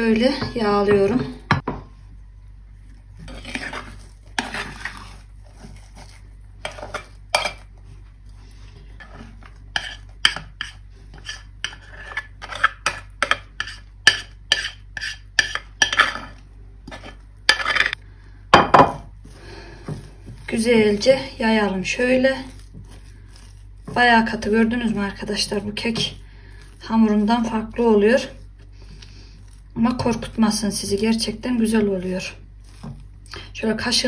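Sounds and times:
spoon scraping glass bowl: 0:03.2 - 0:07.7, 0:09.0 - 0:18.0, 0:20.0 - 0:33.0.

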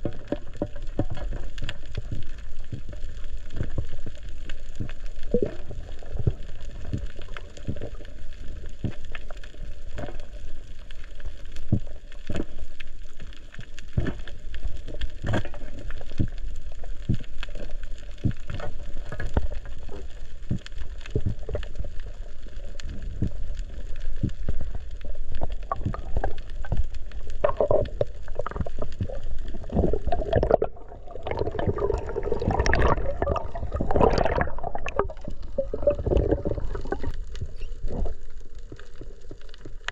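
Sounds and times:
low rumble of moving water: 0:00.0 - 0:39.9
sharp clicks underwater: 0:00.0 - 0:39.9
water bubbling and gurgling: 0:00.0 - 0:39.9.

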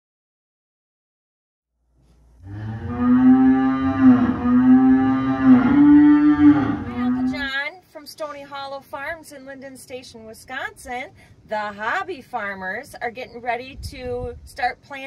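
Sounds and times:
cow mooing: 0:02.4 - 0:07.5.

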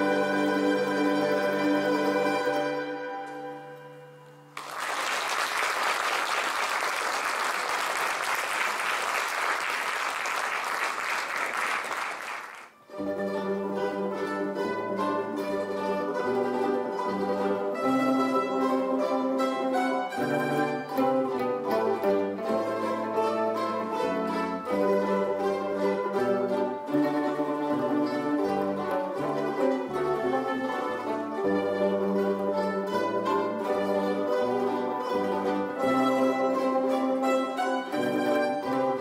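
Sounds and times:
mandolin and guitar ensemble: 0:00.0 - 0:04.7, 0:12.7 - 0:39.0
applause: 0:04.6 - 0:12.8.

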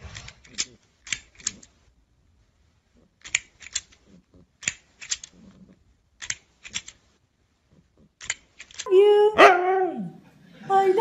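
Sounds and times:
plastic toy clacking: 0:00.0 - 0:01.8, 0:03.2 - 0:05.6, 0:06.2 - 0:07.1, 0:08.2 - 0:08.9.

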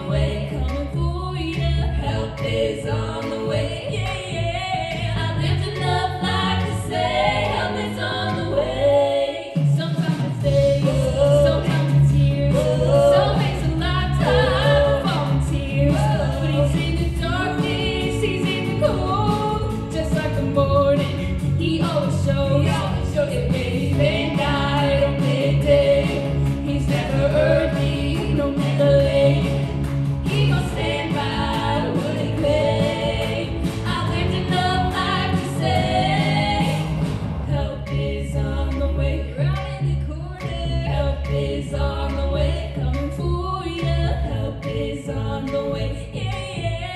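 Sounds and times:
women singing in harmony: 0:00.0 - 0:46.9
low bass part: 0:12.2 - 0:39.0.

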